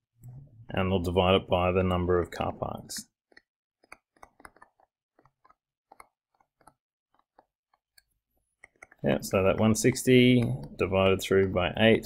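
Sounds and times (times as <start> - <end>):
stylus tapping on tablet screen: 3.3 - 11.5.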